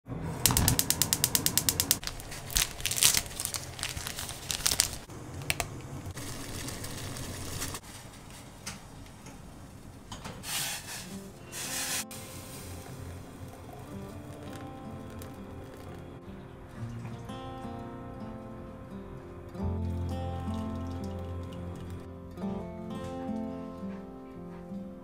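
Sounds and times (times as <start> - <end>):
gas stove igniter clicking: 0.4 - 2.0
water boiling in a pot: 0.4 - 2.2, 3.3 - 7.8, 10.4 - 16.0
hot water pouring into a mug: 6.2 - 7.8, 11.6 - 16.0, 20.4 - 22.0.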